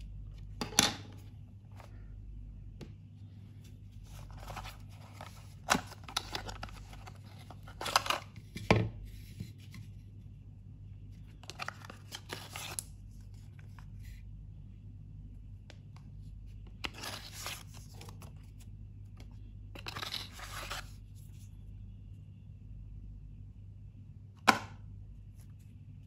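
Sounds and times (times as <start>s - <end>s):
cardboard and plastic rustling: 3.6s - 9.8s, 11.4s - 14.2s.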